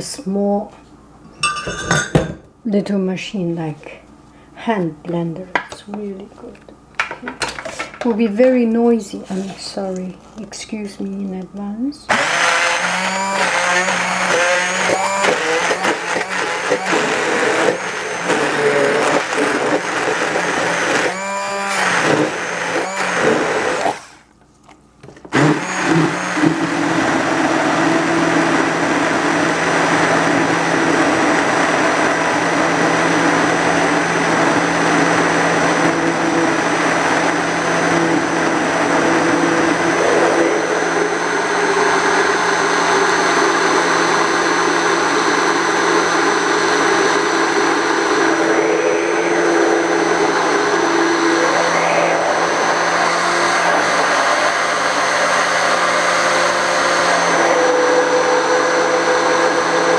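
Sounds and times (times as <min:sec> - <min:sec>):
immersion blender running: 0:12.1 - 0:24.3, 0:25.3 - 0:59.9.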